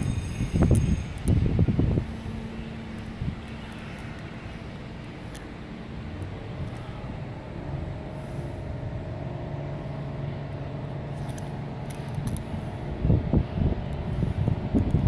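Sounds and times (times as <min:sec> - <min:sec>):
diesel engine drone: 0:00.0 - 0:15.0
wind buffeting microphone: 0:00.0 - 0:15.0.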